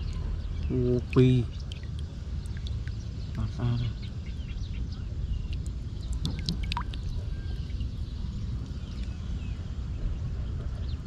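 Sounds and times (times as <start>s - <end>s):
water dripping from hands: 1.1s - 3.4s, 5.5s - 7.1s.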